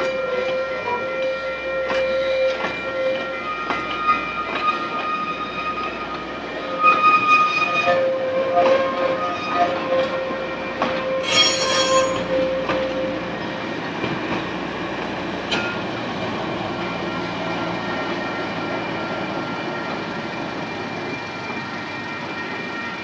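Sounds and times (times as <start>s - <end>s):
sharp wheel squeal: 11.2s - 12.4s.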